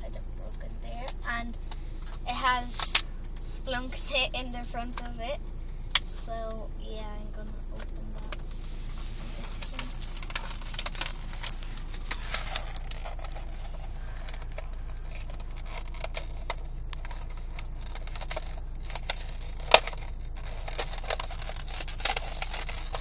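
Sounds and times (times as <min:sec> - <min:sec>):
packaging crinkling and tearing: 0:09.4 - 0:23.0.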